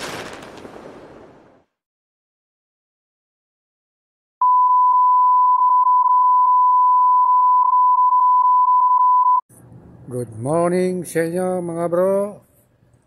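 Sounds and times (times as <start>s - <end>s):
long electronic beep: 4.4s - 9.4s.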